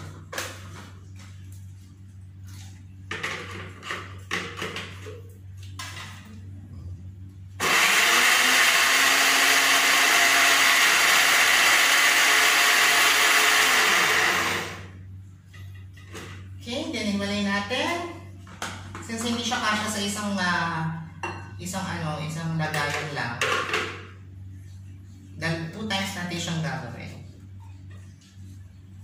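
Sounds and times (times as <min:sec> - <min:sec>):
electric blender running: 0:07.6 - 0:15.0.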